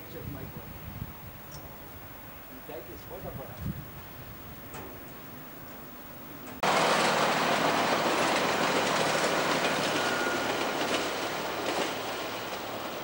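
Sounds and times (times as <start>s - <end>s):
train wheels rumbling: 6.3s - 13.0s.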